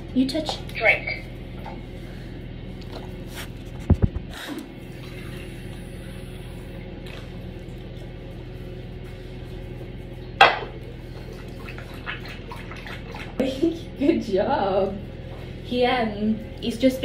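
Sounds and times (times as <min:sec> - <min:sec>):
dog lapping water: 0:04.9 - 0:08.4, 0:10.9 - 0:13.7.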